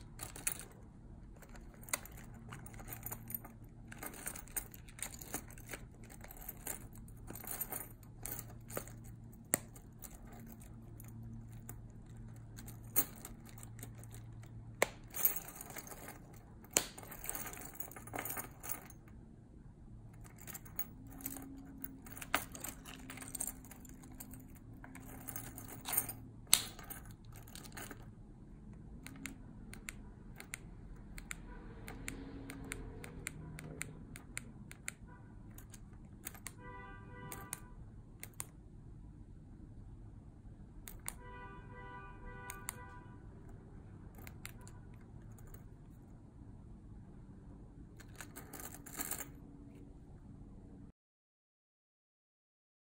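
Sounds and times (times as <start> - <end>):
metal keys jingling: 0.0 - 19.1, 20.2 - 28.1, 48.0 - 49.4.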